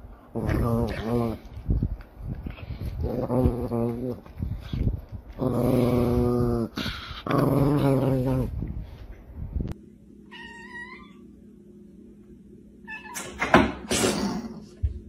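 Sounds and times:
cat meowing: 0:10.3 - 0:11.2.

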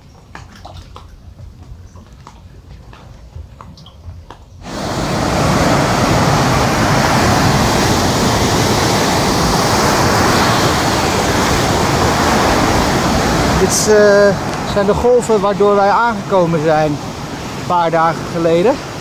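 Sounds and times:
surf breaking on beach: 0:04.6 - 0:19.0.

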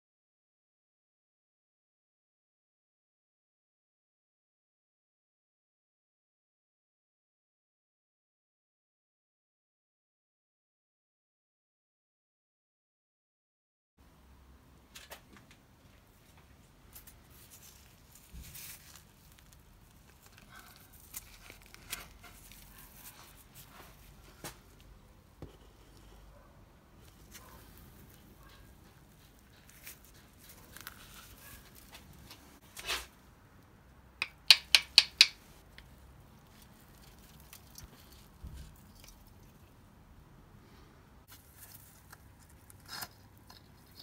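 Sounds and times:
screwdriver scraping and knocking: 0:34.2 - 0:35.4.

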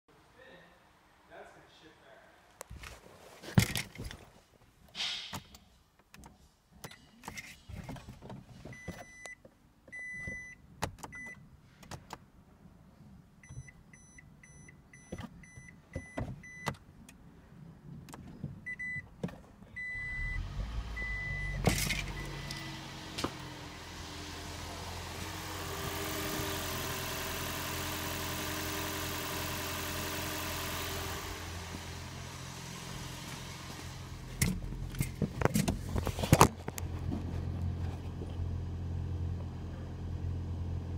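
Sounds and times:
car engine running: 0:20.0 - 0:40.9.

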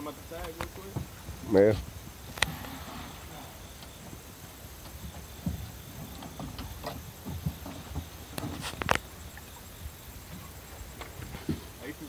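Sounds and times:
boots thumping on metal deck: 0:04.8 - 0:08.6.

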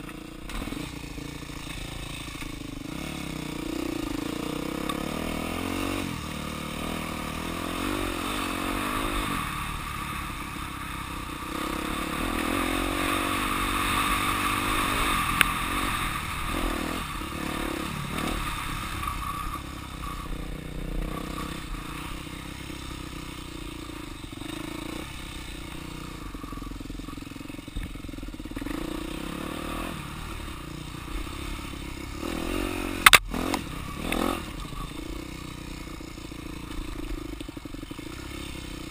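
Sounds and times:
dirt bike engine revving: 0:00.0 - 0:38.9
sharp clack: 0:33.0 - 0:34.8.

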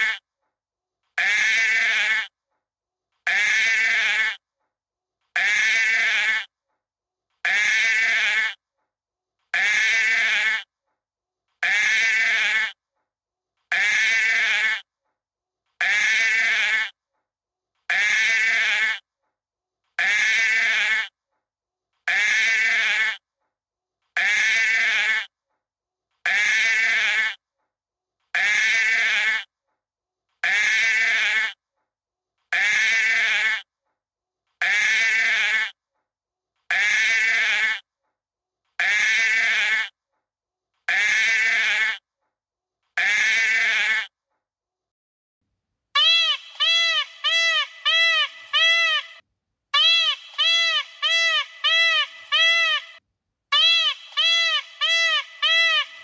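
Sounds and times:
sheep bleating: 0:00.0 - 0:00.2, 0:01.2 - 0:02.3, 0:03.3 - 0:04.4, 0:05.4 - 0:06.5, 0:07.5 - 0:08.6, 0:09.6 - 0:10.7, 0:11.6 - 0:12.8, 0:13.7 - 0:14.8, 0:15.8 - 0:16.9, 0:34.6 - 0:35.7, 0:43.0 - 0:44.1.

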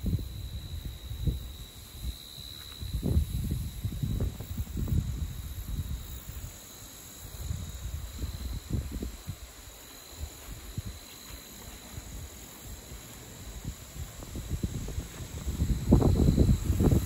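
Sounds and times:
insects chirping: 0:00.0 - 0:17.0
footsteps on grass: 0:02.5 - 0:03.6, 0:07.8 - 0:17.0.

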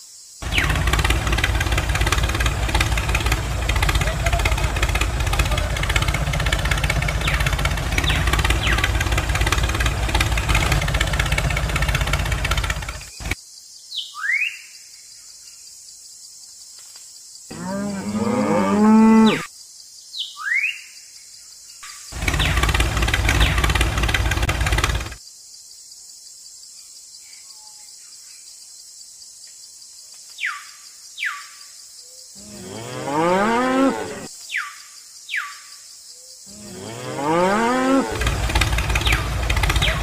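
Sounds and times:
tractor engine running: 0:00.4 - 0:13.4, 0:22.2 - 0:25.2, 0:38.1 - 0:40.0
cow mooing: 0:17.5 - 0:19.5, 0:32.4 - 0:34.3, 0:36.5 - 0:38.5.

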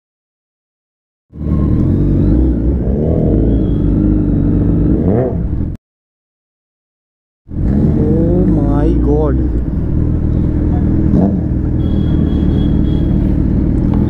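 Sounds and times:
motorcycle engine throttle blips: 0:01.4 - 0:05.6, 0:10.2 - 0:14.0.

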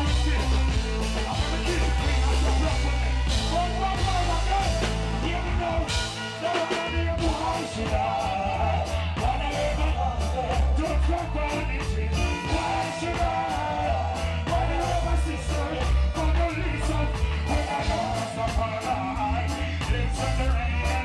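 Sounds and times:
deep bass line: 0:00.0 - 0:21.0
man singing: 0:00.0 - 0:21.0
reggae band playing: 0:00.0 - 0:21.0
steady drum beat: 0:00.0 - 0:21.0.

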